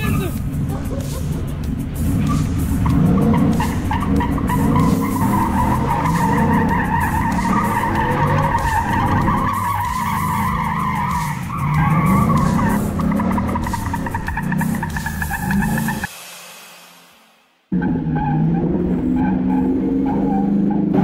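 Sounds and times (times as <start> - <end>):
engine revving: 0.0 - 16.1, 17.7 - 21.0
tyres squealing on concrete: 2.2 - 16.1.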